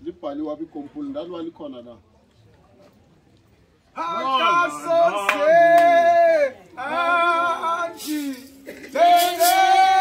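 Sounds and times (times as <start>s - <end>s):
voices singing a hymn: 4.0s - 10.0s.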